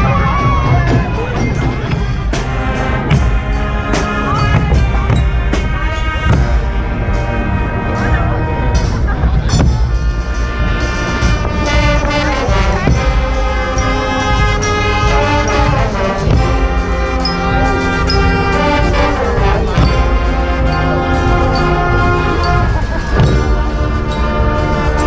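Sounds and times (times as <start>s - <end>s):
bass drums: 0.0s - 25.0s
brass band playing: 0.0s - 25.0s.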